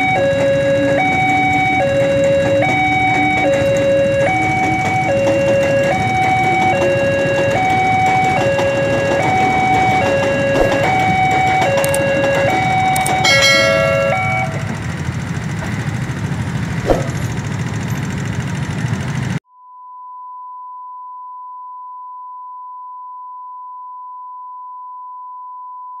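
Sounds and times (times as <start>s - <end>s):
level crossing two-tone alarm: 0.0s - 15.2s
idling traffic: 0.0s - 19.4s
steady test tone: 0.4s - 15.1s.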